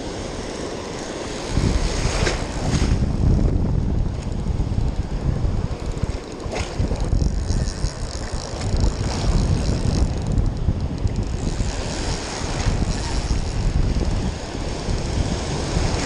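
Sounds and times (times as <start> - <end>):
breaking surf: 0.0 - 3.5, 11.3 - 16.0
swirling water: 0.0 - 16.0
wind buffeting microphone: 0.0 - 16.0.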